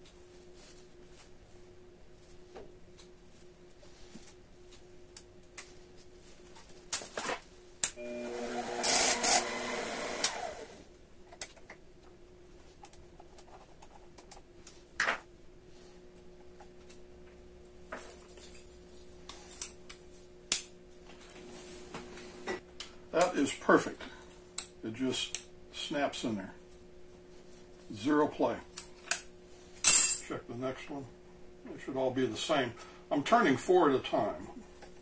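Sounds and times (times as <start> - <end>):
lathe motor hum: 8.0 - 10.8.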